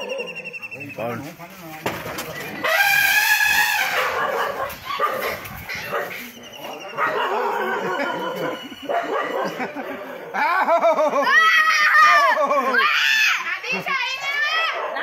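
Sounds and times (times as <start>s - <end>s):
dog barking: 3.9s - 10.2s, 14.6s - 15.0s.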